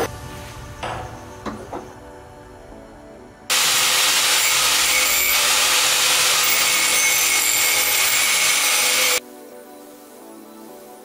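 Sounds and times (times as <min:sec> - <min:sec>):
angle grinder grinding steel: 0:03.5 - 0:09.2.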